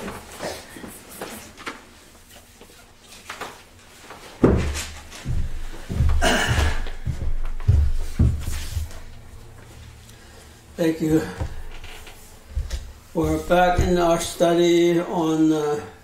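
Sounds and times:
footsteps on hollow wooden platform: 4.4 - 9.7, 11.0 - 14.4.

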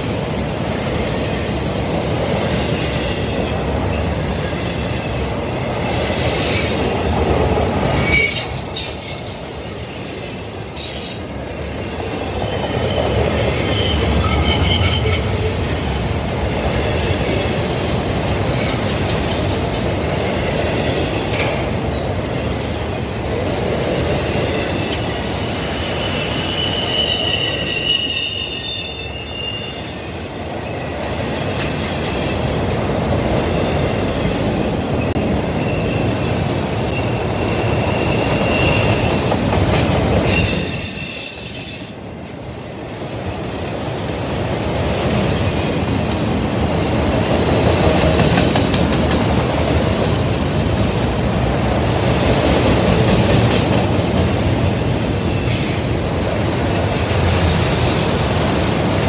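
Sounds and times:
train wheels rumbling on rails: 0.0 - 59.0
high-pitched wheel squeal: 8.0 - 11.2, 25.5 - 29.9, 36.9 - 39.3, 40.3 - 41.9.

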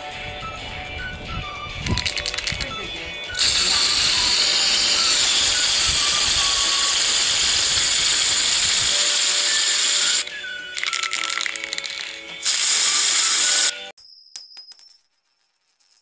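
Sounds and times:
background music: 0.0 - 13.9
loud steady hiss: 3.4 - 10.2.

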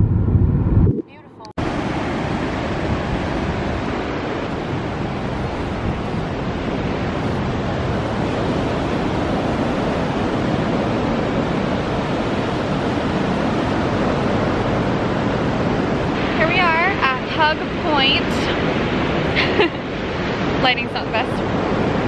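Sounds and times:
wind on microphone: 0.0 - 22.0
waves breaking on beach: 1.6 - 22.0.

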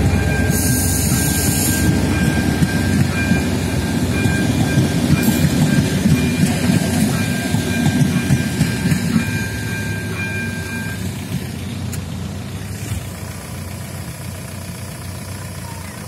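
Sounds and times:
steady high tone: 0.0 - 11.4
train coaches rumbling over rails: 0.0 - 16.0.

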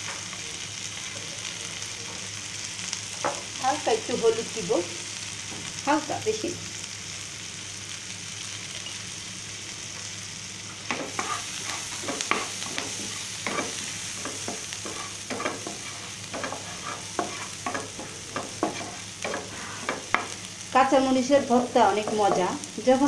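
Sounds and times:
food sizzling in oil: 0.0 - 23.0
wooden spatula scraping pan: 10.9 - 20.4.

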